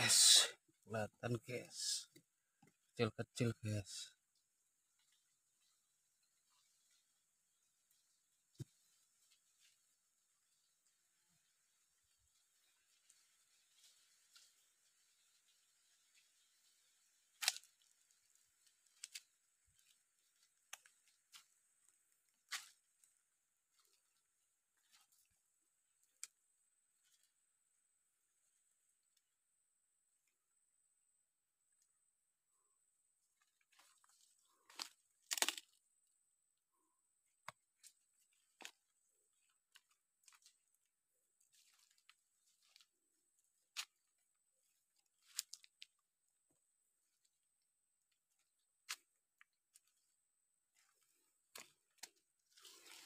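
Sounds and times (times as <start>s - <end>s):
leaves and twigs crackling underfoot: 4.3s - 29.4s, 33.0s - 36.3s, 37.2s - 53.0s
twigs snapping: 17.2s - 24.2s, 26.0s - 26.4s, 33.4s - 36.0s, 37.4s - 40.8s, 41.4s - 42.9s, 43.5s - 44.1s, 45.0s - 46.0s, 48.3s - 50.1s, 50.7s - 53.0s
footsteps in dry leaves: 50.8s - 53.0s.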